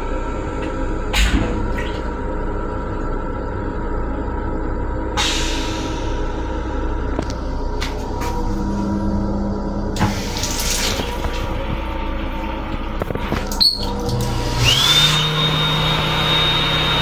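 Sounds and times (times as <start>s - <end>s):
faucet water running: 10.0s - 11.8s, 13.2s - 15.1s
electric motor whining: 14.1s - 17.0s.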